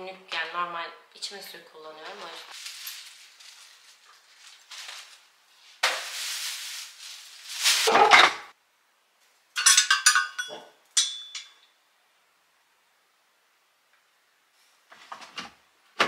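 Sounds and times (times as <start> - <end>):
plastic bag rustling: 2.0 - 8.5
glass and metal clinks: 9.6 - 11.7.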